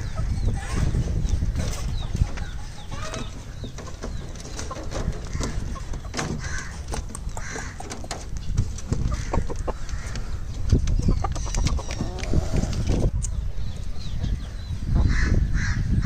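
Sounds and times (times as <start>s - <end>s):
chickens chirping and clucking: 0.0s - 16.0s.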